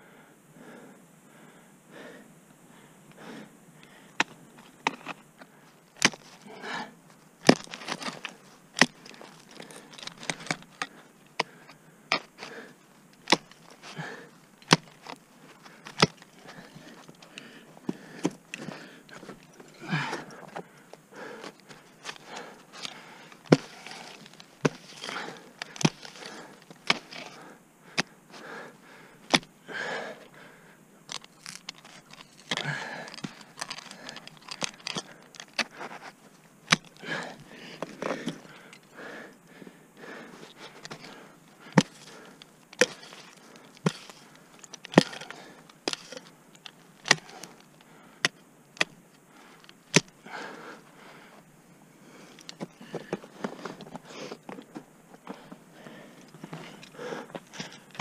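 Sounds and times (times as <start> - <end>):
ice tools striking ice: 7.4 - 8.2.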